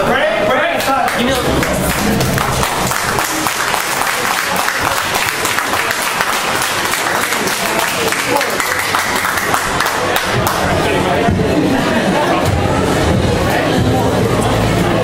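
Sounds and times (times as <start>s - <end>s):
audience applauding: 0.8s - 11.0s.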